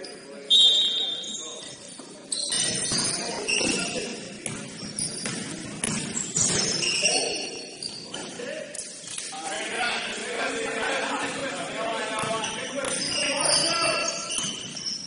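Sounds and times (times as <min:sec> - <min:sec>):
sneakers squealing on court: 0:00.0 - 0:09.1, 0:12.2 - 0:15.0
basketball bouncing: 0:04.4 - 0:06.9, 0:12.2 - 0:13.1.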